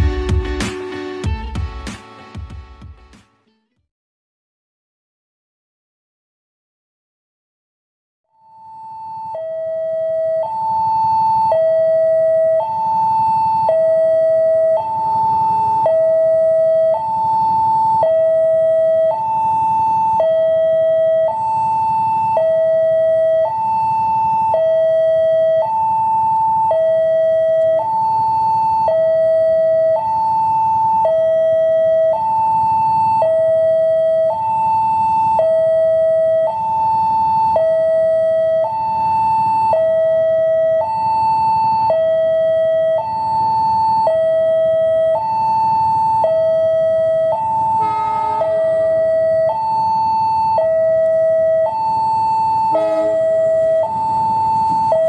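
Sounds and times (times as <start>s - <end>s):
level crossing hi-lo alarm: 0.0s - 2.5s, 8.4s - 55.0s.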